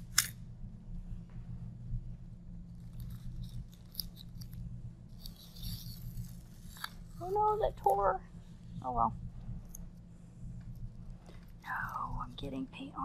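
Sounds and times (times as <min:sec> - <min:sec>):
tape peeled off paper: 0:05.2 - 0:08.0.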